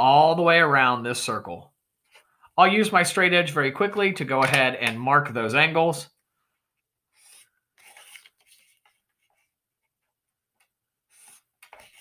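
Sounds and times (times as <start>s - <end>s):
marker strokes on paper: 7.1s - 12.0s.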